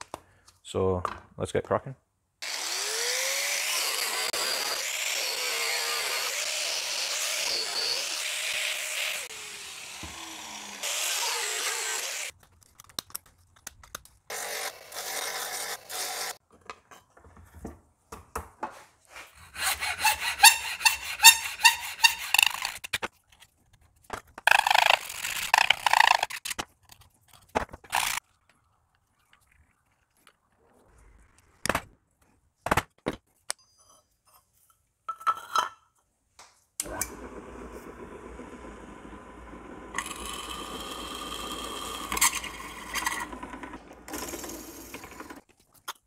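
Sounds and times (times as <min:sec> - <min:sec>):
angle grinder whining: 0:02.4 - 0:12.3, 0:19.5 - 0:22.9, 0:36.8 - 0:45.4
hand tool scraping metal plate: 0:19.1 - 0:23.1, 0:41.7 - 0:45.4.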